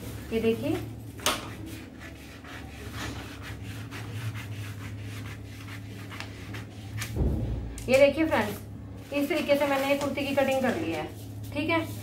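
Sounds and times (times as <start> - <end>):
low hum: 7.0 - 9.2.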